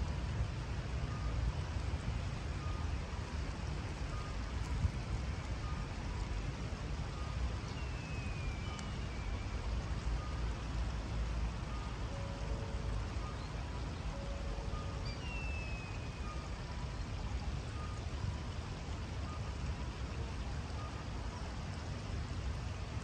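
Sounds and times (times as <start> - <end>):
flowing shallow river water: 0.0 - 23.0
distant reversing beeper: 1.1 - 1.4, 2.6 - 3.0, 4.1 - 4.4, 7.0 - 10.7, 11.6 - 18.2, 19.2 - 19.6.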